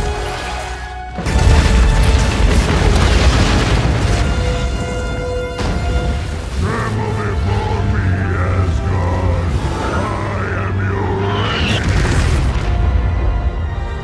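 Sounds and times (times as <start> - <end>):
dramatic orchestral music: 0.0 - 14.0
explosion blast: 1.2 - 7.7, 11.2 - 13.6
rumble of debris: 1.2 - 10.4.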